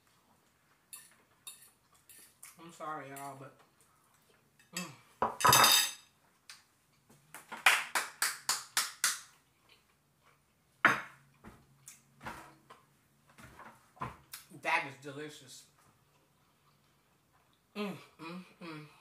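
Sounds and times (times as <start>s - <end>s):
hands clapping: 7.4s - 9.3s.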